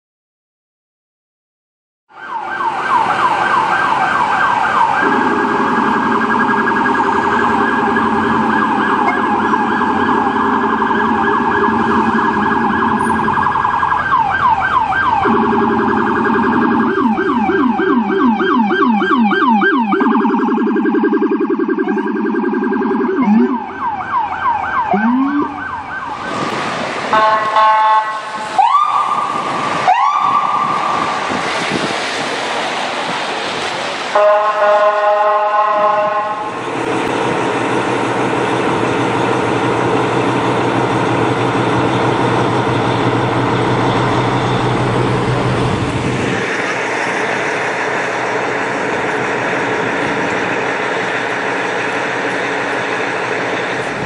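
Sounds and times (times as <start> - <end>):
sirens yelping: 2.1 - 33.2, 34.1 - 54.0
vehicle horn blast: 27.2 - 28.4, 34.2 - 36.5.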